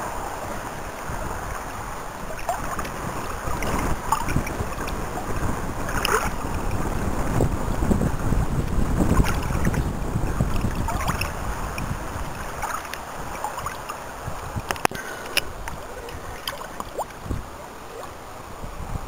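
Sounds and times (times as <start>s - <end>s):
water lapping against boat: 0.0s - 19.0s
wind buffeting microphone: 0.0s - 19.0s.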